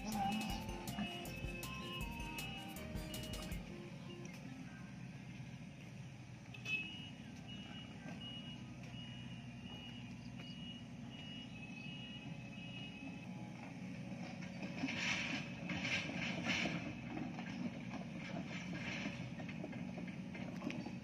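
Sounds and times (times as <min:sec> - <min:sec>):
excavator travel alarm beeping: 0:00.0 - 0:05.2, 0:06.5 - 0:16.0
distant diesel rumble: 0:00.0 - 0:21.0.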